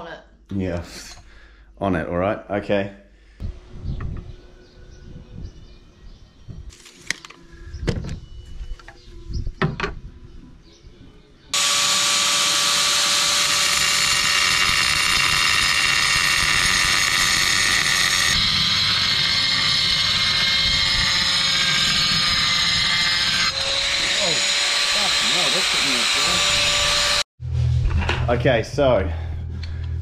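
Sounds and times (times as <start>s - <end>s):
power tool running: 11.5s - 27.3s.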